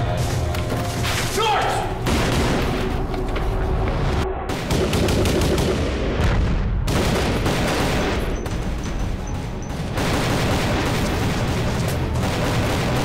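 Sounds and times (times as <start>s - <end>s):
rapid gunfire: 4.5s - 8.8s, 9.4s - 13.0s.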